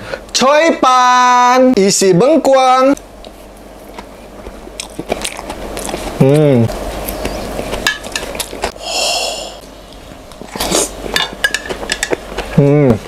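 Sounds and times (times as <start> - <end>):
wet chewing: 3.0 - 8.8, 9.6 - 13.0.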